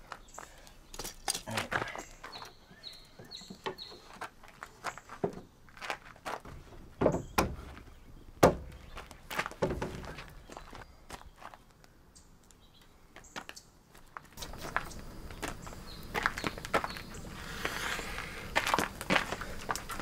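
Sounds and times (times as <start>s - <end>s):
footsteps on gravel: 0.0s - 11.9s, 13.2s - 20.0s
wooden rails knocking: 6.5s - 10.3s.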